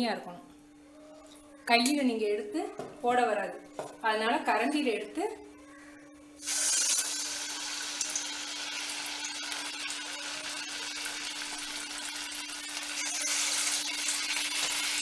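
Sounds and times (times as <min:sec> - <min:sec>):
batter sizzling in hot oil: 0:06.4 - 0:15.0.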